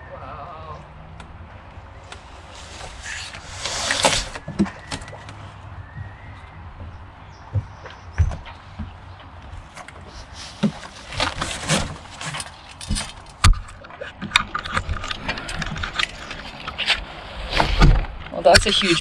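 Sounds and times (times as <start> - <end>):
cardboard scraping and rustling: 2.2 - 5.1, 9.7 - 13.6, 14.2 - 18.8.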